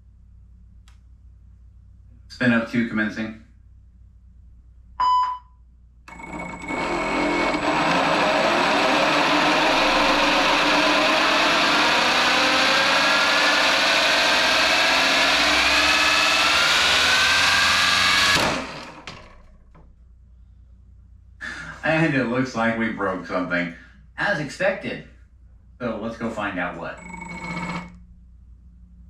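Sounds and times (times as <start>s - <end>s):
gear whine: 6.1s - 19.9s, 26.9s - 28.1s
ducted fan rushing air: 6.2s - 23.2s.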